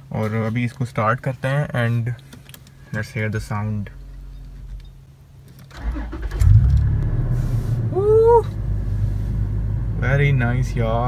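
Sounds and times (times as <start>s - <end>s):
car engine starting and idling: 5.7s - 11.0s.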